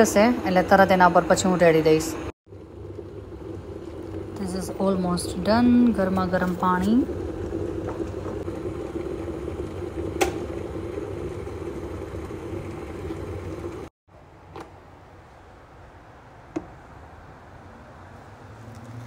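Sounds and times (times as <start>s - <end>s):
electric kettle boiling: 0.0s - 13.9s
kettle switch click: 10.2s - 10.4s.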